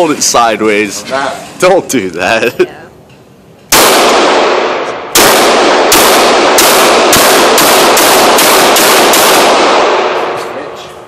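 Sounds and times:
pistol shots echoing indoors: 0:03.7 - 0:11.0.

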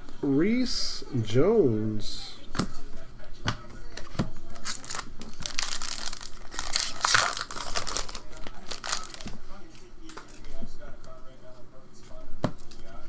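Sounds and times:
foil wrapper crinkling and tearing: 0:04.5 - 0:09.4.

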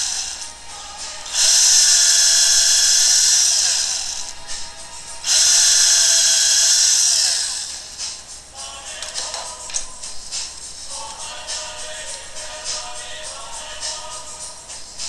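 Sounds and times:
drill motor winding down: 0:00.0 - 0:04.6, 0:05.2 - 0:08.0
electric drill boring wood: 0:00.0 - 0:04.6, 0:05.2 - 0:08.0.

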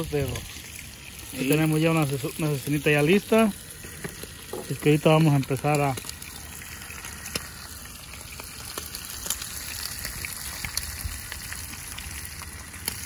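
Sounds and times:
meat sizzling in frying pan: 0:00.0 - 0:13.0
crackling pops: 0:03.7 - 0:07.7.

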